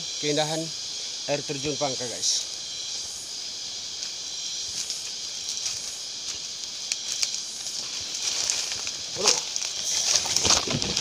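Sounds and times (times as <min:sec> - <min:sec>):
forest insects hissing: 0:00.0 - 0:11.0
footsteps in leaf litter: 0:04.0 - 0:11.0.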